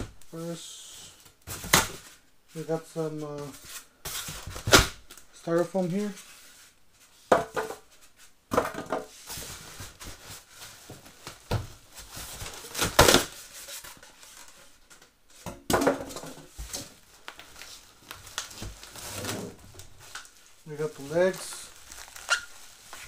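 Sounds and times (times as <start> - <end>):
styrofoam scraping and rustling: 16.6 - 23.0.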